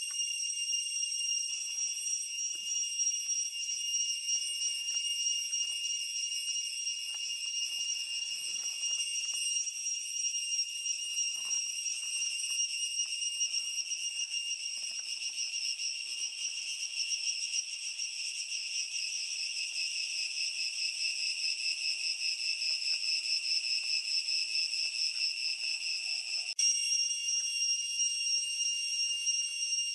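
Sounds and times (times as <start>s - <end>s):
cicada buzzing: 0.0s - 27.2s.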